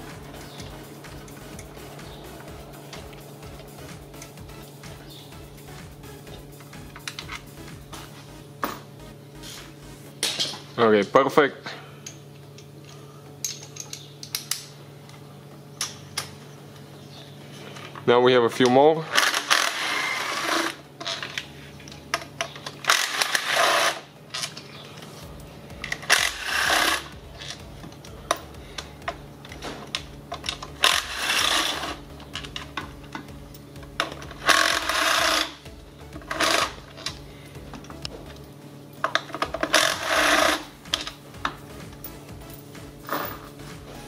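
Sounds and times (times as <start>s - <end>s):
metallic clinks of bolts: 12.0s - 14.8s
cordless ratchet spinning: 25.8s - 27.6s, 30.3s - 32.8s, 34.0s - 35.6s, 36.2s - 37.2s, 39.3s - 41.2s.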